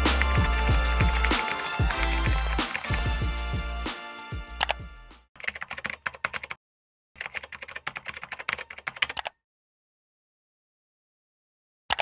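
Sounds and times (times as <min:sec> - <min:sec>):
keyboard typing: 0:00.0 - 0:03.2, 0:04.6 - 0:04.8, 0:05.4 - 0:06.6, 0:07.2 - 0:09.4
background music: 0:00.0 - 0:05.3.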